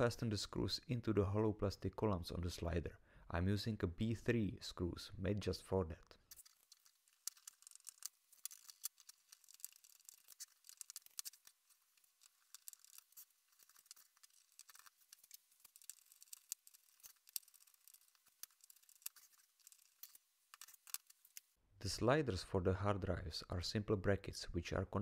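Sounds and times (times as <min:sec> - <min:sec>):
screwdriver clicking and scratching: 0:06.3 - 0:21.5.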